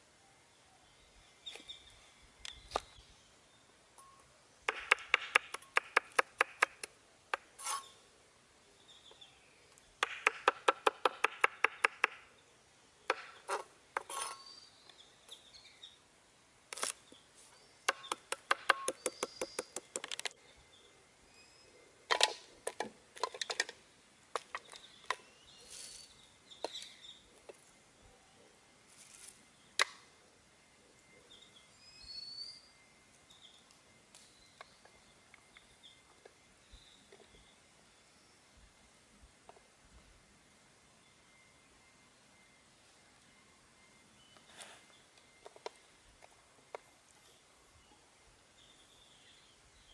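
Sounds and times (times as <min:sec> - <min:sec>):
cleaver chopping on wooden board: 0:04.7 - 0:07.4, 0:10.0 - 0:12.2.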